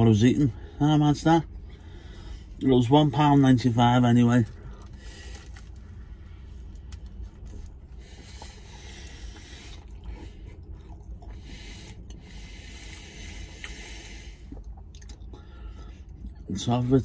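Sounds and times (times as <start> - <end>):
person chewing crunchy pastry: 4.4 - 16.6.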